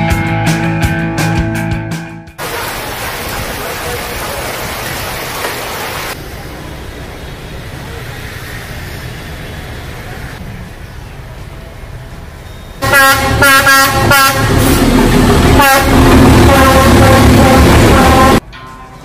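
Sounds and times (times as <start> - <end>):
locomotive engine rumble: 9.8 - 18.5
locomotive horn blasts: 12.8 - 14.9, 15.5 - 18.4.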